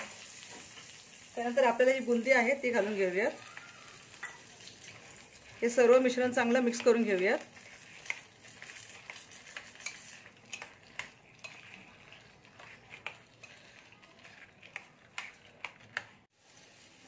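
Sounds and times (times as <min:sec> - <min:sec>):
spoon clinking and scraping bowl: 0:04.1 - 0:16.3.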